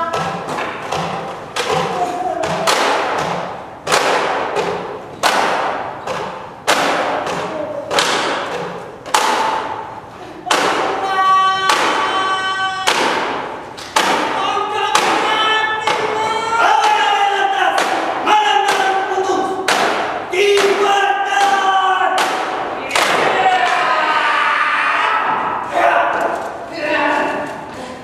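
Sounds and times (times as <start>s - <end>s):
heavy percussion beats: 0.0s - 24.0s
group chanting: 10.4s - 28.0s.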